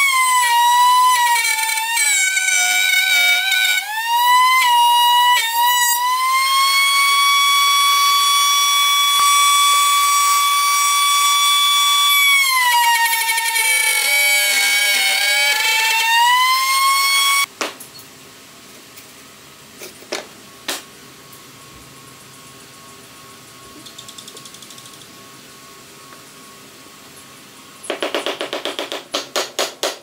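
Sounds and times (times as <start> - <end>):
router high whine: 0.0 - 17.5.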